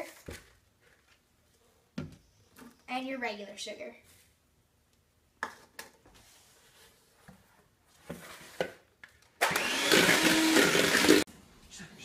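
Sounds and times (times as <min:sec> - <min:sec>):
electric hand mixer running: 0:09.4 - 0:11.3.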